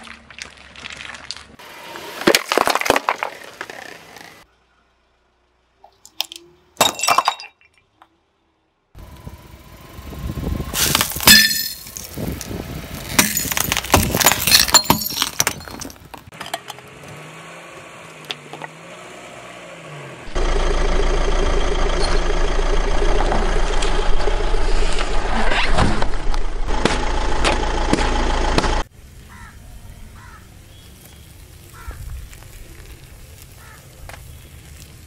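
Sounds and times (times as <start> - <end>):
candies cracking under tyre: 2.2 - 4.4, 10.8 - 16.4, 30.8 - 35.0
car engine running: 9.0 - 13.7, 19.7 - 25.3, 26.0 - 28.9.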